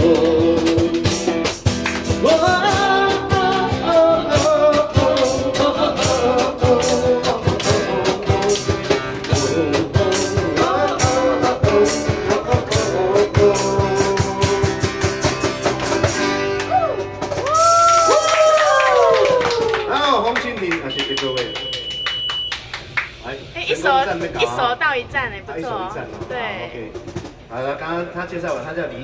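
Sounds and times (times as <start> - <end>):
man singing into microphone: 0.0 - 1.3, 2.2 - 14.9
electric bass: 0.0 - 17.5
acoustic guitar strumming: 0.0 - 17.7.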